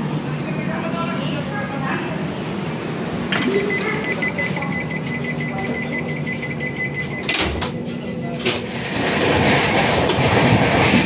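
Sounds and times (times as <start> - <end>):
steady background rumble: 0.0 - 11.0
rapid high electronic beeping: 3.4 - 8.4.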